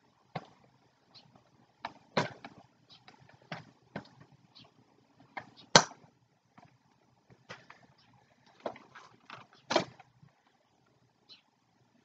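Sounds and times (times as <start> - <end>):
toy parts and cardboard box handled: 7.4 - 10.1.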